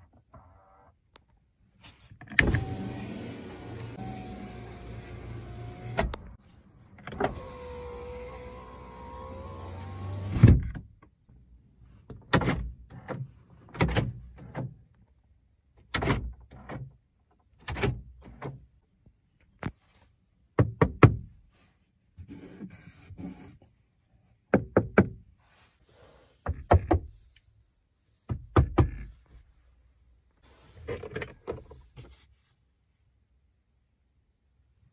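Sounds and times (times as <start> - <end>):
electric window motor whining: 2.4 - 6.4, 7.1 - 10.4.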